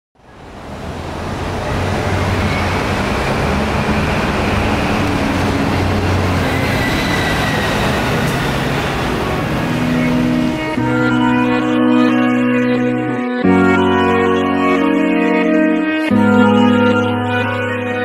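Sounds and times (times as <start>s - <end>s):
city traffic and rail rumble: 0.2s - 11.1s.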